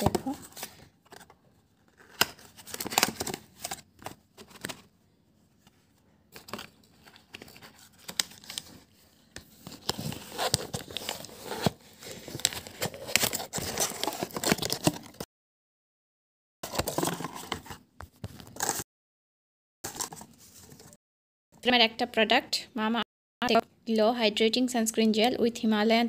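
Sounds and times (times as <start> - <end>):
cardboard carton crinkling: 1.9 - 4.9, 6.4 - 15.2, 16.6 - 17.8.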